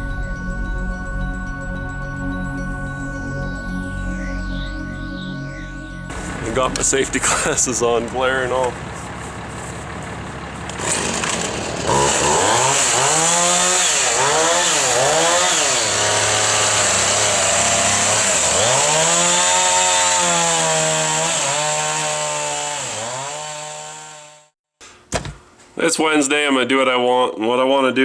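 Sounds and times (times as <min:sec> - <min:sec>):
chainsaw revving and cutting: 0:10.7 - 0:24.6.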